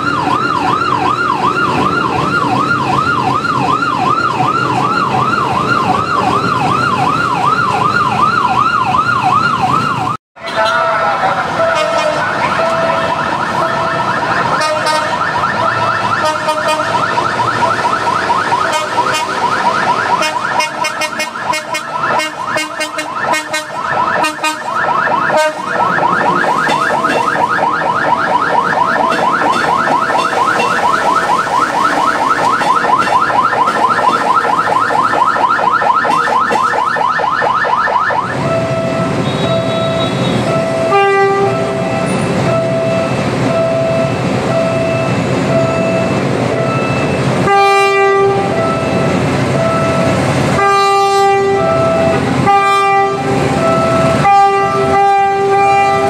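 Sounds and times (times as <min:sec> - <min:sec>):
ambulance siren yelping: 0:00.0 - 0:56.0
repeated beeping tone: 0:11.6 - 0:40.9, 0:41.5 - 0:47.3, 0:48.5 - 0:50.2, 0:53.6 - 0:54.2.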